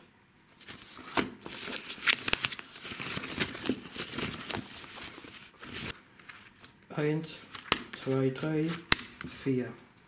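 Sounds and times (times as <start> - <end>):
tissue paper crinkling: 0.6 - 6.0.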